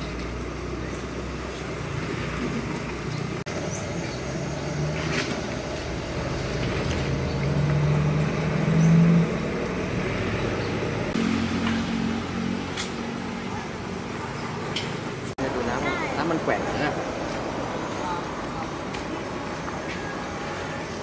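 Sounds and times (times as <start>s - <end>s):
vehicle engine running: 0.0s - 15.7s
street background noise: 0.0s - 21.0s.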